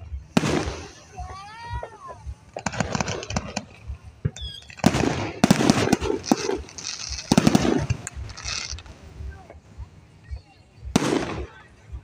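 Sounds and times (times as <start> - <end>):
rapid firework crackling: 0.0 - 10.0, 10.9 - 12.0
firework shells bursting: 0.3 - 9.1.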